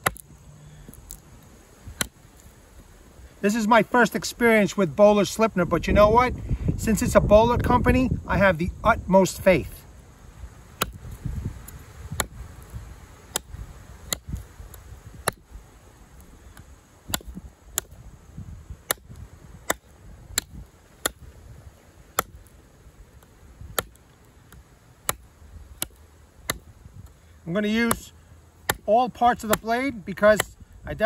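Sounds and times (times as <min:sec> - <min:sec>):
knife chopping into log: 0:10.8 - 0:11.0, 0:12.1 - 0:12.4, 0:13.3 - 0:14.4, 0:17.1 - 0:18.0, 0:18.9 - 0:21.3, 0:22.1 - 0:22.4, 0:23.7 - 0:24.0, 0:25.8 - 0:26.7, 0:27.8 - 0:30.5.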